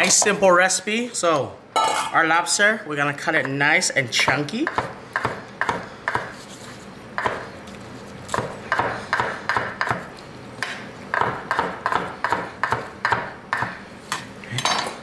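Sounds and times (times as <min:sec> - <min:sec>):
knife chopping on wooden board: 0:04.3 - 0:06.4, 0:08.3 - 0:13.8.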